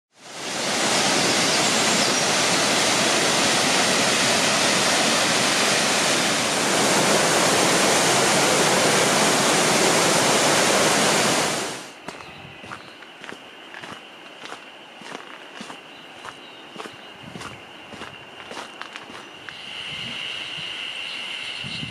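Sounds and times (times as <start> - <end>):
waterfall rushing: 0.2 - 12.0
footsteps on dirt path: 12.0 - 19.4.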